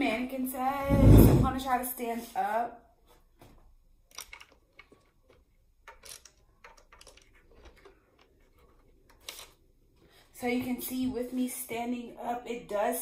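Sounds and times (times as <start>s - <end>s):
person moving about: 0.8s - 1.6s.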